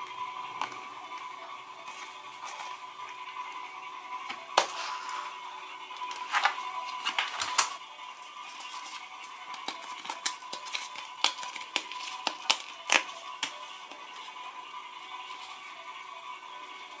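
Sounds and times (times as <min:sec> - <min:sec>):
paper packet tearing and crinkling: 0:08.4 - 0:14.0.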